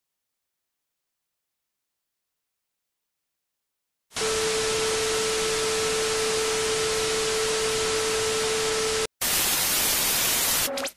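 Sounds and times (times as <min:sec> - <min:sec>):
tv static hiss with steady tone: 0:04.2 - 0:10.9.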